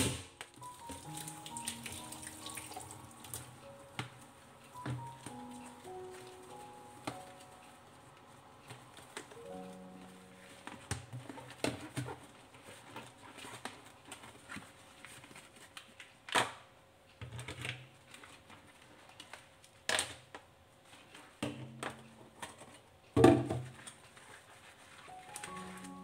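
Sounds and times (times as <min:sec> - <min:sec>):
containers knocking in metal sink: 0:23.2 - 0:23.7.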